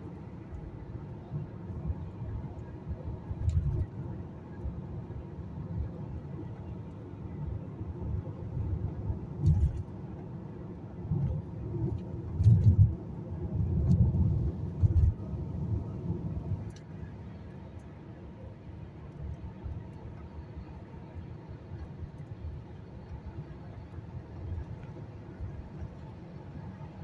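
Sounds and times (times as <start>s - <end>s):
car cabin road rumble: 0.0s - 27.0s.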